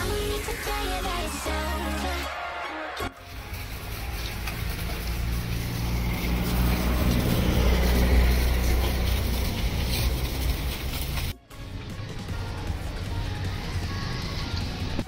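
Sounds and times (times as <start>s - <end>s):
water spray hissing: 3.2s - 11.3s
pressure washer motor drone: 3.2s - 13.0s.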